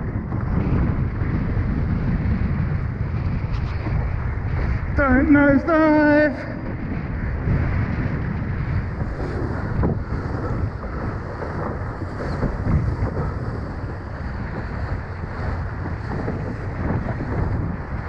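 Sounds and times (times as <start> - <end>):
wind buffeting microphone: 0.0 - 18.0
water splashing along a hull: 6.3 - 18.0.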